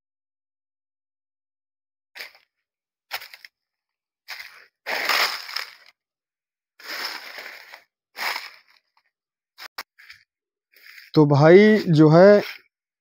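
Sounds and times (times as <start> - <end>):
footsteps crunching through dry leaves: 2.2 - 2.5, 3.1 - 3.5, 4.3 - 6.0, 6.8 - 8.9, 9.6 - 12.6.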